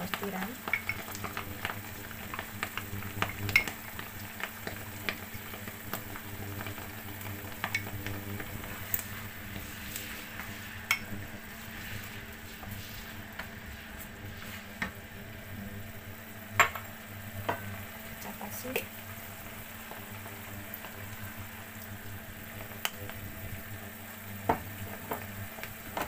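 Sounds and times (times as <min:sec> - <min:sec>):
onion sizzling in a wok: 0:00.0 - 0:26.0
spatula stirring and scraping: 0:00.6 - 0:15.8.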